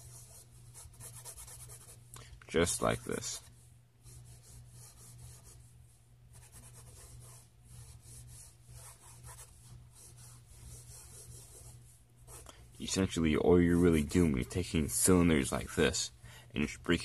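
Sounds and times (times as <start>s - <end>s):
pencil scratching on paper: 0.0s - 2.0s, 2.9s - 5.7s, 6.3s - 15.2s.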